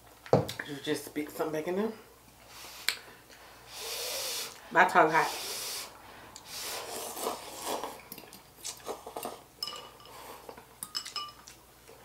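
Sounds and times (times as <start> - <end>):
noodles being slurped: 6.4 - 8.0
metal utensils clinking on bowls: 9.6 - 11.5.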